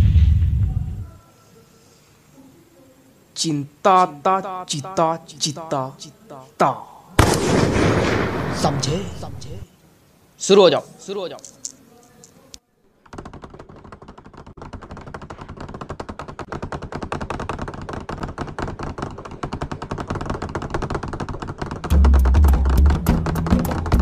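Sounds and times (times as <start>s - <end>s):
desk bench tapping rattle: 13.1s - 24.0s.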